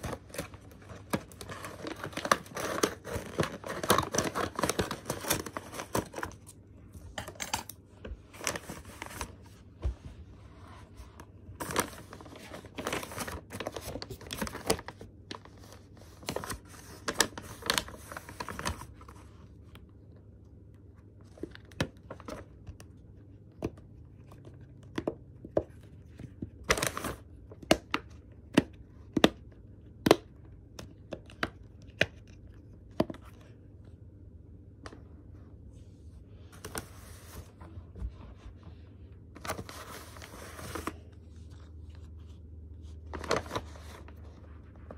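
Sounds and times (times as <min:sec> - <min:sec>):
paper envelope tearing and crinkling: 0:00.0 - 0:06.5, 0:11.6 - 0:19.2, 0:26.7 - 0:27.2, 0:43.1 - 0:44.2.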